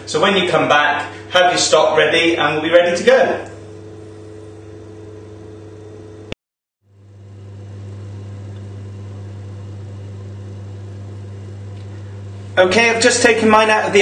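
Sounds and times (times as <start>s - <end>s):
steady low hum: 0.0s - 14.0s
click: 8.5s - 8.7s.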